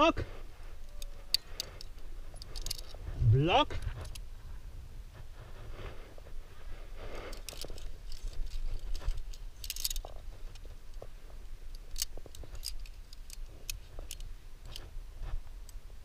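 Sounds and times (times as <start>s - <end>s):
metal climbing gear clinking: 0.8s - 3.1s, 7.1s - 11.1s, 11.7s - 14.9s.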